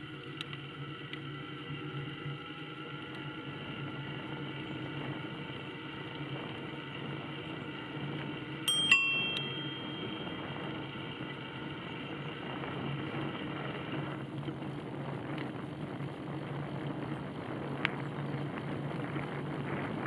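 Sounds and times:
low hum and hiss of riding: 0:00.0 - 0:20.0
bicycle bell ringing: 0:08.7 - 0:11.0.

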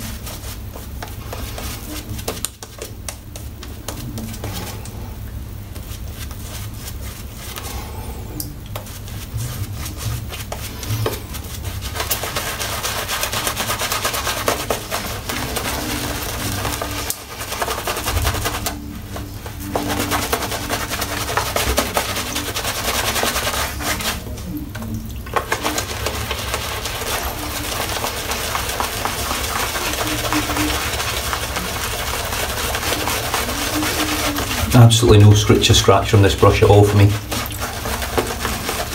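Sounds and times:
shaving brush scrubbing lather: 0:00.0 - 0:38.9.

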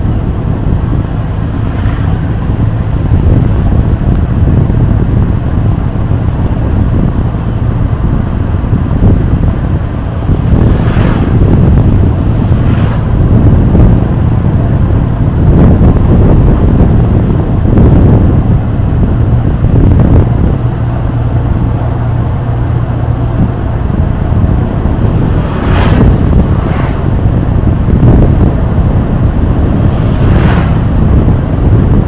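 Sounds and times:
road noise: 0:00.0 - 0:32.0
wind buffeting microphone: 0:00.0 - 0:32.0
brief whooshes: 0:10.5 - 0:11.5, 0:12.5 - 0:13.1, 0:25.3 - 0:27.1, 0:30.0 - 0:31.0.

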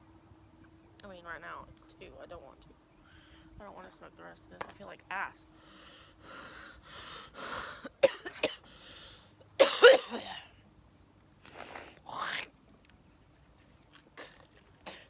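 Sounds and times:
woman coughing hard: 0:07.8 - 0:08.6, 0:09.6 - 0:10.5.

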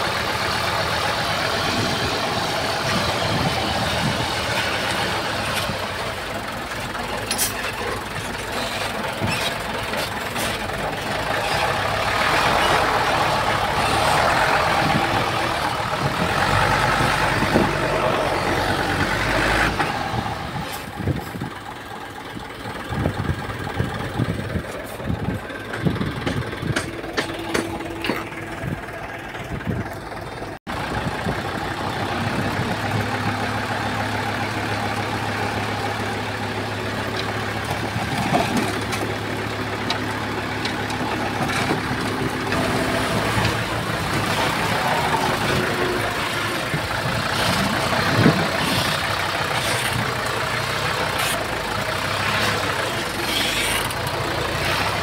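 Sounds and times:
diesel engine of heavy machinery: 0:00.0 - 0:55.0
metallic clanks and knocks: 0:25.6 - 0:28.8.

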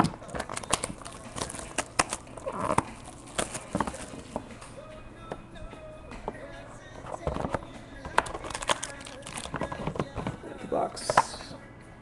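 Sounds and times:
cardboard rustle: 0:00.4 - 0:04.4.

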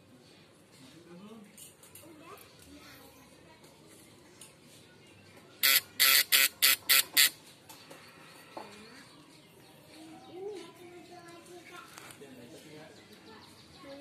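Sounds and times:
ignition coil buzzing harshly: 0:05.6 - 0:07.3.

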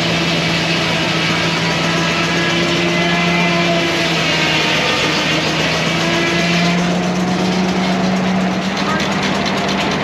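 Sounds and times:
steam engine humming: 0:00.0 - 0:10.0
fast even machine beat: 0:05.4 - 0:10.0.

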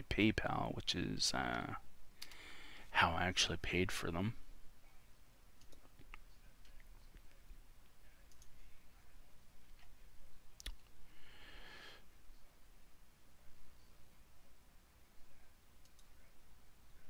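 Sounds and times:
computer mouse clicks: 0:05.6 - 0:07.4, 0:08.3 - 0:08.6, 0:10.6 - 0:10.9, 0:15.8 - 0:16.2.

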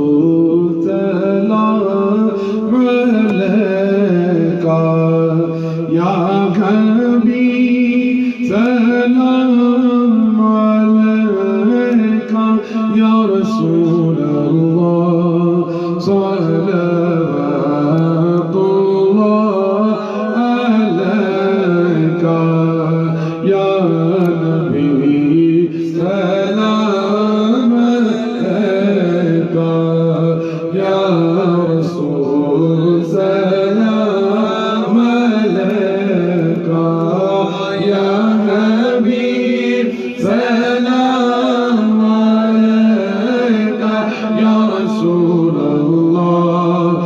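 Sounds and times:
men singing unaccompanied: 0:11.2 - 0:47.0.

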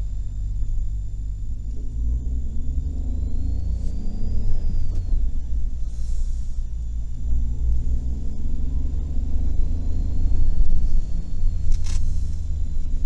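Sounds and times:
car engine and tyre rumble: 0:00.0 - 0:13.0
brief hiss: 0:11.7 - 0:12.5.

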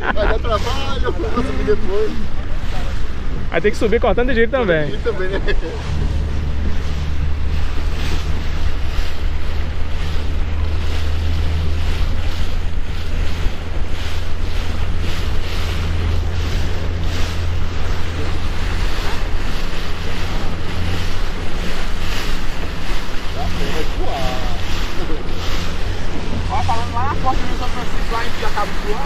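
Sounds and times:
boat bow slapping waves: 0:00.0 - 0:29.0
water rushing past hull: 0:00.0 - 0:29.0
wind rumble on microphone: 0:00.0 - 0:29.0.

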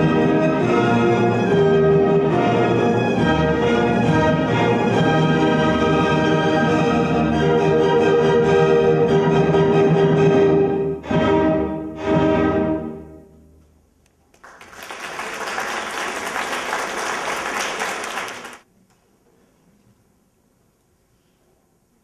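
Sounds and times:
audience applauding: 0:14.3 - 0:18.7.

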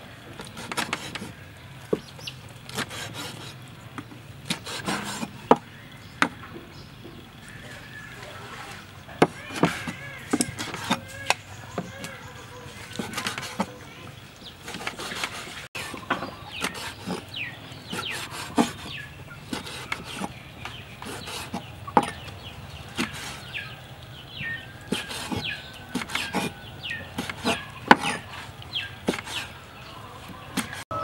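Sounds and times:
chickens clucking: 0:00.2 - 0:31.0
cleaver chopping on wooden board: 0:04.5 - 0:06.4, 0:09.2 - 0:12.2, 0:14.7 - 0:17.2, 0:17.9 - 0:20.4, 0:21.0 - 0:22.2, 0:23.0 - 0:23.4, 0:24.9 - 0:26.5, 0:27.2 - 0:28.3, 0:29.0 - 0:29.5, 0:30.5 - 0:30.8.

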